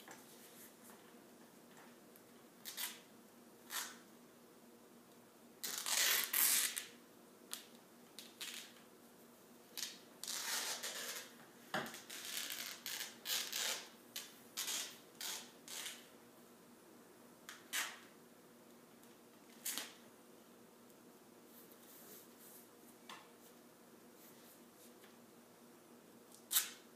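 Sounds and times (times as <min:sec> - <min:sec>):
tape ripping: 0:02.6 - 0:03.1, 0:03.7 - 0:04.0, 0:05.6 - 0:06.9, 0:07.5 - 0:08.8, 0:09.8 - 0:11.3, 0:11.9 - 0:16.1, 0:17.5 - 0:18.0, 0:19.5 - 0:20.0, 0:26.4 - 0:26.8.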